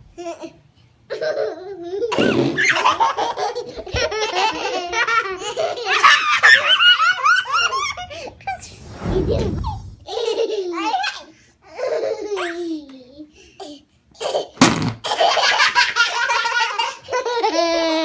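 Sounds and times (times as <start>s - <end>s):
children laughing: 1.1s - 8.4s, 15.1s - 18.0s.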